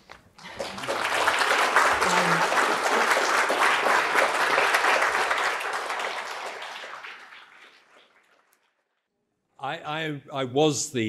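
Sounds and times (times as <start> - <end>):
audience applauding: 0.4 - 8.7.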